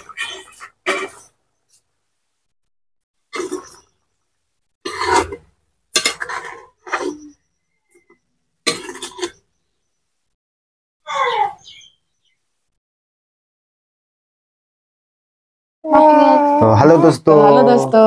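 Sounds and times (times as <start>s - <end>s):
metal ladle scraping a pan: 0.0s - 1.3s, 3.3s - 4.0s, 4.8s - 7.4s, 8.0s - 9.4s.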